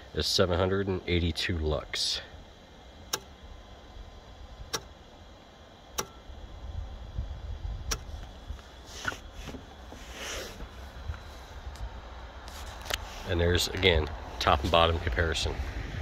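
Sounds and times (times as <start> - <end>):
car engine rumbling: 0.0 - 16.0
sharp clicks: 3.1 - 3.4, 4.7 - 4.9, 5.9 - 6.2, 7.9 - 8.3.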